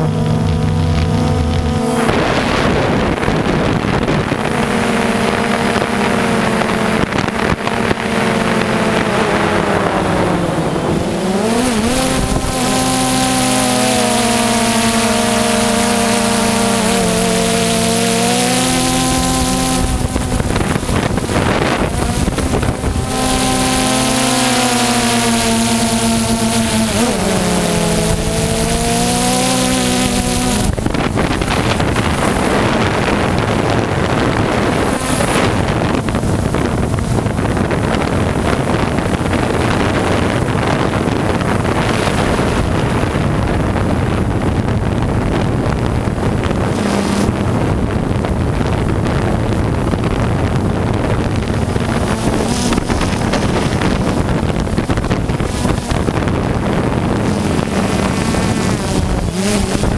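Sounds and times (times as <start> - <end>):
model helicopter motor and rotor: 0.0 - 59.9
wind noise on microphone: 0.0 - 59.9.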